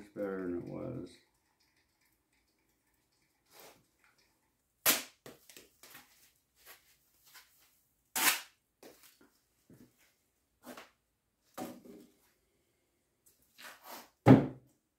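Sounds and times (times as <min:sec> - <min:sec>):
small clicks and rustles: 0:01.2 - 0:04.6.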